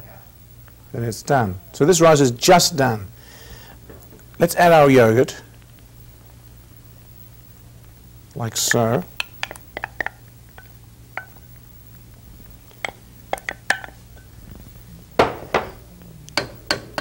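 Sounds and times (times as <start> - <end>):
wooden spoon tapping a jug and pot: 8.7 - 11.4, 12.8 - 14.0, 16.4 - 17.0.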